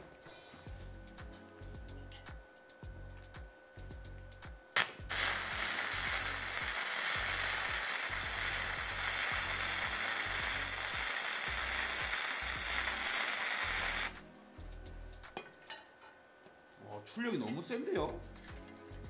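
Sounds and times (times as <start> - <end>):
welding arc crackling hiss: 4.8 - 14.2.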